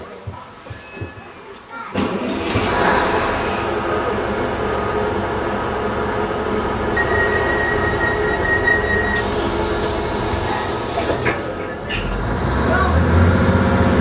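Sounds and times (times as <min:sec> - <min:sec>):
diesel engines idling: 0:02.5 - 0:14.0
high warning beep: 0:07.0 - 0:09.2.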